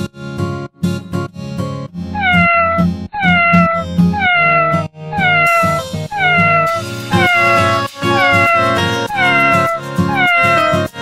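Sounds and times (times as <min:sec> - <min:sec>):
cat meowing: 0:02.2 - 0:11.0
background music: 0:05.1 - 0:11.0.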